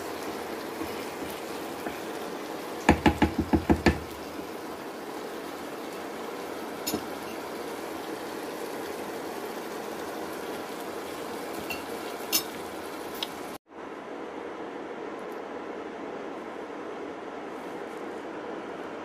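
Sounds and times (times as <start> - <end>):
curry sizzling in a pan: 0.0 - 13.6.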